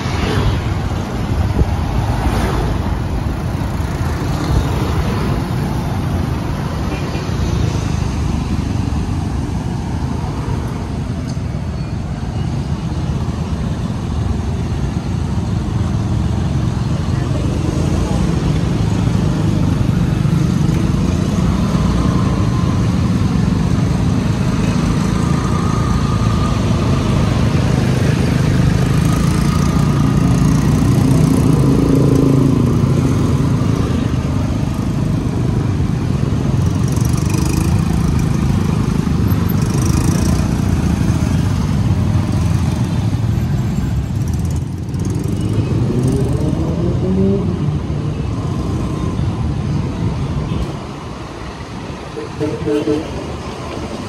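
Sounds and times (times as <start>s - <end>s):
passing cars and motorcycles: 0.0s - 54.0s.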